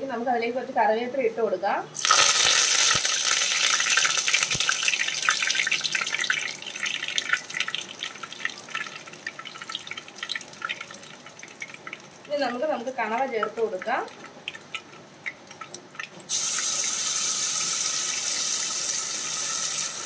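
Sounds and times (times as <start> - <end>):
leaves sizzling in hot oil: 2.0 - 14.1, 16.3 - 20.0.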